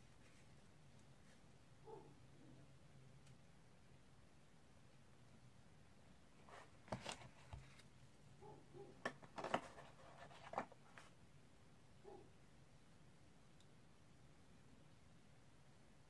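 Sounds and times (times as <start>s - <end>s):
packaging rustling: 6.5s - 7.8s, 9.0s - 11.1s.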